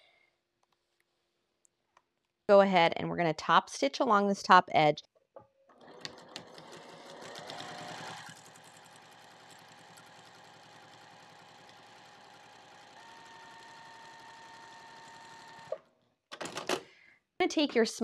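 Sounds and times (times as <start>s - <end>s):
sewing machine stitching: 5.8s - 16.7s.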